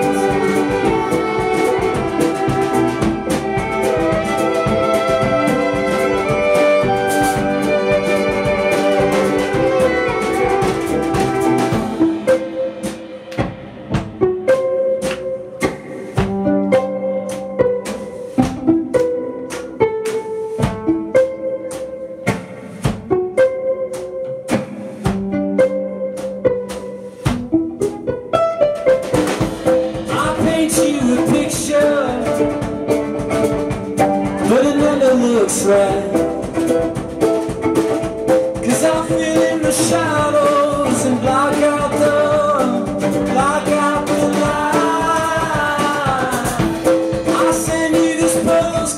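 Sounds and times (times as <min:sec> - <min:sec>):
person singing: 0:00.0 - 0:13.1, 0:29.6 - 0:37.9, 0:38.6 - 0:48.9
violin bowed long notes: 0:00.0 - 0:13.4
violin plucked pizzicato: 0:00.0 - 0:48.7.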